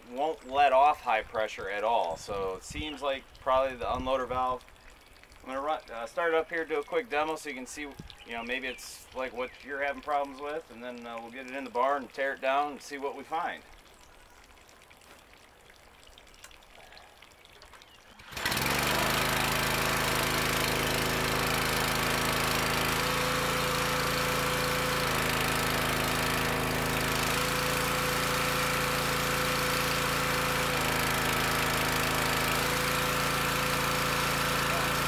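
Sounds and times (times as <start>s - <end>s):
pressure washer engine running: 18.2s - 35.0s.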